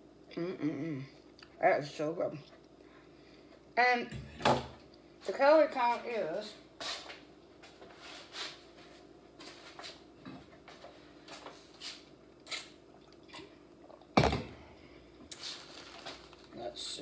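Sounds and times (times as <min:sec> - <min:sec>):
bottle thumping on countertop: 0:14.2 - 0:14.6
paper sheets rustling: 0:15.4 - 0:16.6.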